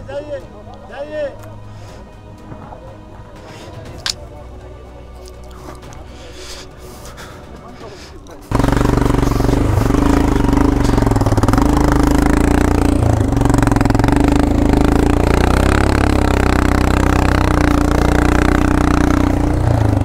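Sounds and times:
motorcycle engine running: 8.4 - 20.0.

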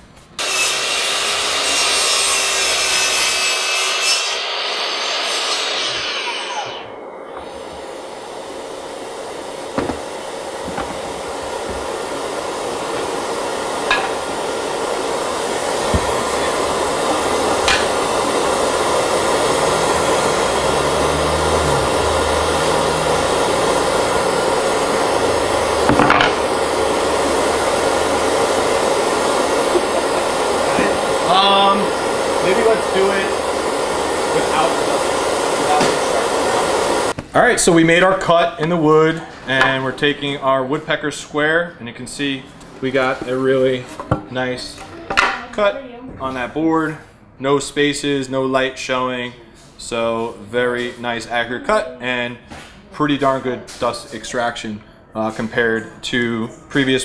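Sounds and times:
miter saw cutting wood: 0.4 - 37.2
dust extraction rushing: 3.9 - 37.8.

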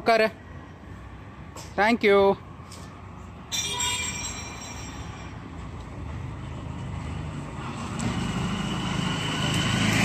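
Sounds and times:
auto-rickshaw engine running: 5.6 - 10.0.

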